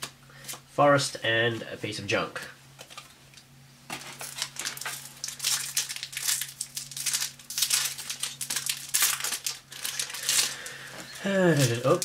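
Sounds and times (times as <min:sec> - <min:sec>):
faint steady hum: 0:00.0 - 0:12.0
foil wrapper crinkling: 0:03.9 - 0:12.0.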